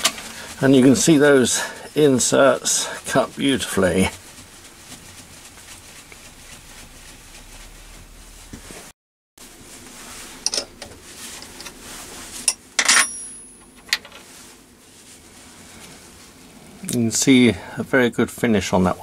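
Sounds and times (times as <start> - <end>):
spanner clinking on metal vice: 12.8 - 14.1.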